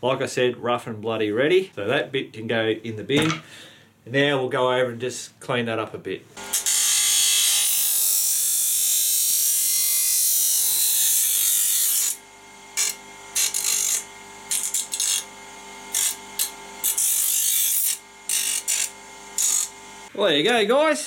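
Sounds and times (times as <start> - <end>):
bench grinder humming: 6.4 - 20.1.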